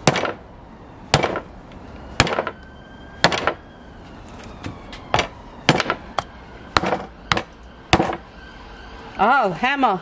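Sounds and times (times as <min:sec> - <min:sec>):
hatchet chopping meat: 0:00.0 - 0:00.4, 0:01.1 - 0:01.4, 0:02.2 - 0:02.6, 0:03.2 - 0:03.6, 0:05.2 - 0:06.0, 0:06.8 - 0:08.2.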